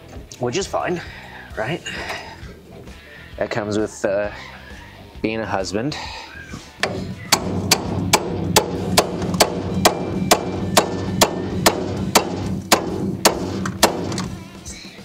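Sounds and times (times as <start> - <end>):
hammer striking steel fork: 6.8 - 14.2.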